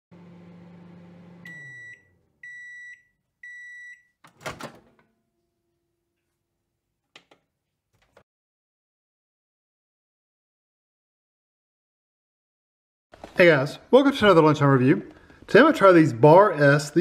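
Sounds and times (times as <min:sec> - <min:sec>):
microwave humming: 0:00.1 - 0:06.2
high microwave beeps: 0:01.4 - 0:04.2.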